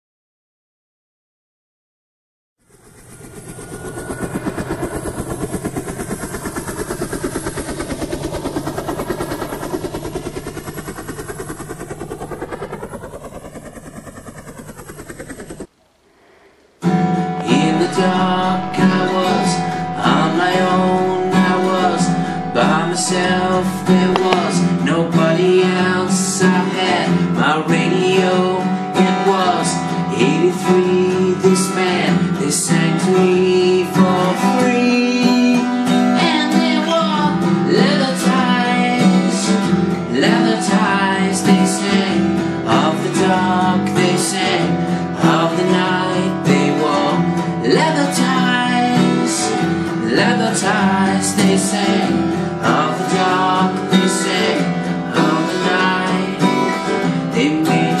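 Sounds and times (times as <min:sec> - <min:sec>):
rapidly pulsing sound: 0:02.6 - 0:25.5
strummed acoustic guitar: 0:16.8 - 0:58.0
man singing: 0:17.3 - 0:58.0.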